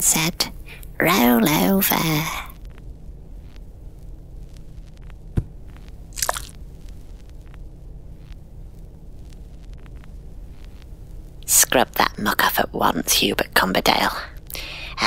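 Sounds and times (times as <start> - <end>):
low steady hum: 0.0 - 15.0
wet squelch: 6.2 - 6.6.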